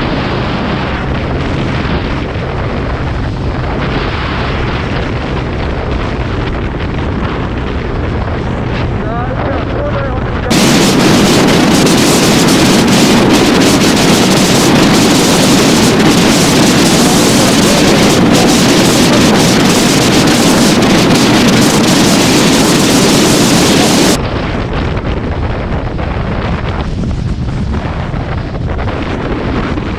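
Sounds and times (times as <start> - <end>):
wind buffeting microphone: 0.0 - 29.9.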